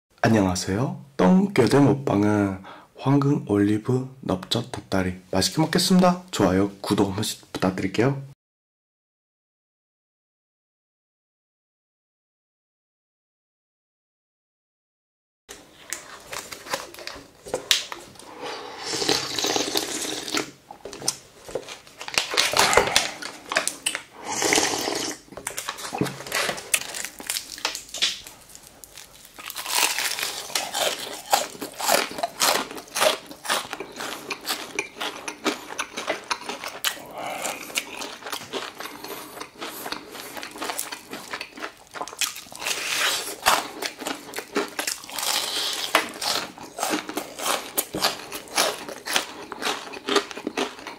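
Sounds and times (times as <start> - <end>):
fried chicken crinkling and tearing: 15.9 - 18.0, 21.1 - 24.0, 25.4 - 50.9
crunchy bites and chewing: 19.1 - 50.9.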